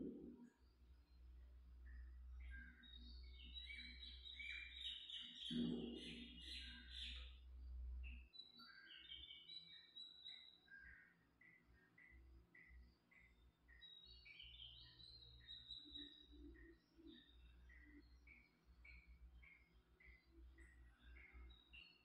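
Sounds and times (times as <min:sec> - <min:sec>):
small birds chirping: 0:00.0 - 0:22.0.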